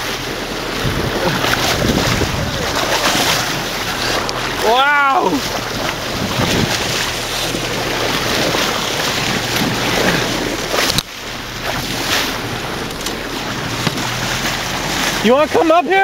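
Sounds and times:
water rushing along hull: 0.0s - 16.0s
wind buffeting microphone: 0.0s - 16.0s.

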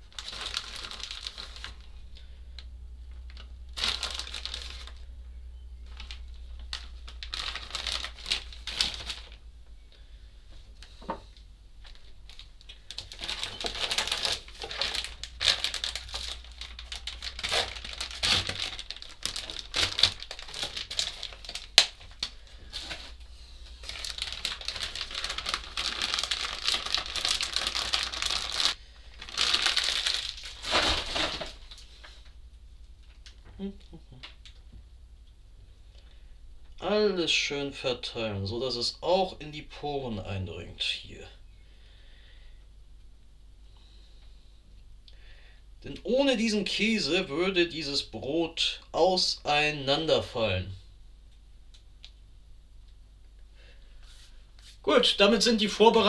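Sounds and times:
cling film crinkling: 0.0s - 2.0s, 3.1s - 5.1s, 5.8s - 9.4s, 11.8s - 32.4s.

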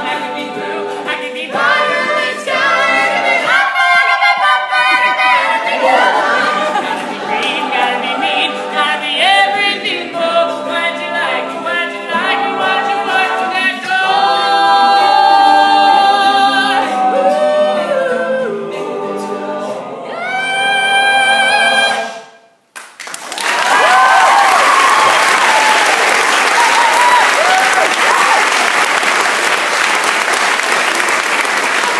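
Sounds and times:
male a cappella group singing: 0.0s - 22.4s.

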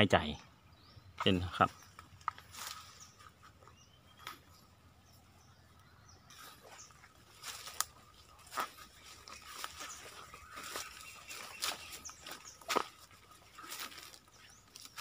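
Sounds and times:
footsteps through dry leaves: 2.4s - 3.6s, 6.3s - 15.0s.

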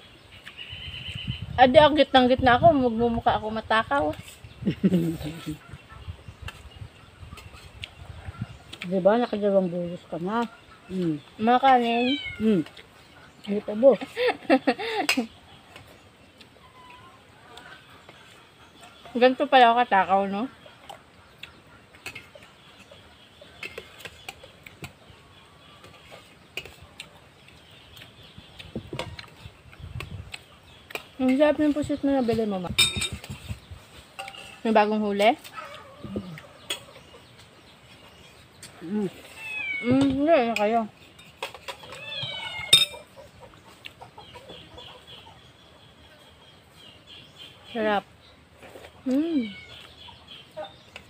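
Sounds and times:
spoons clinking against plates: 32.8s - 33.3s, 34.2s - 34.6s, 42.7s - 43.1s.

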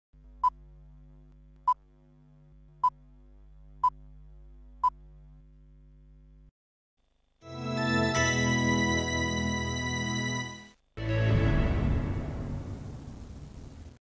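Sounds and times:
low steady hum: 0.2s - 6.5s, 11.6s - 14.0s.

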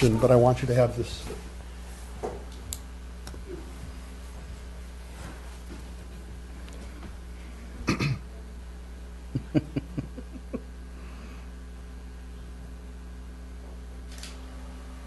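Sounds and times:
electrical hum: 0.0s - 15.0s
person coughing: 7.8s - 8.3s.

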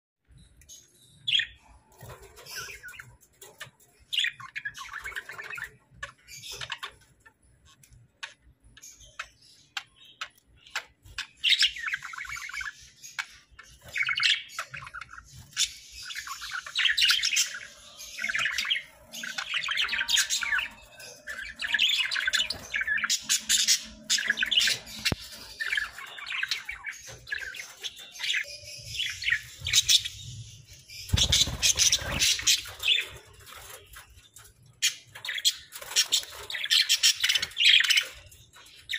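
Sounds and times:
budgerigars chattering and chirping: 1.2s - 38.9s.

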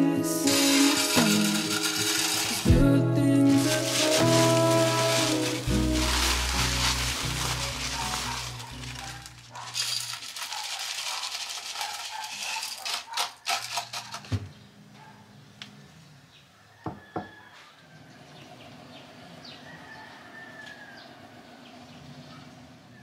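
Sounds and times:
gravel pouring into plastic planter: 0.4s - 2.8s, 3.4s - 14.1s.

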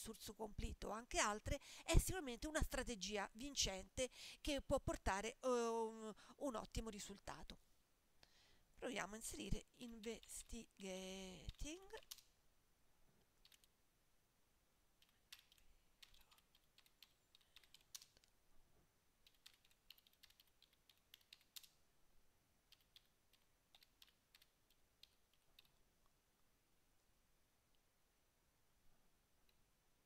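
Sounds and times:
computer keyboard typing: 11.4s - 12.3s, 13.4s - 13.7s, 15.0s - 18.3s, 19.2s - 21.8s, 22.7s - 25.8s.

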